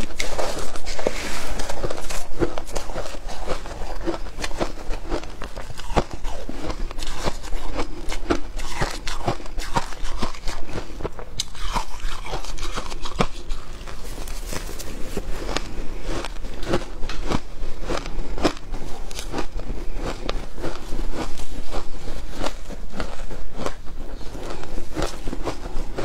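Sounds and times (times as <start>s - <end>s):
shaved ice crunching: 11.4s - 16.8s.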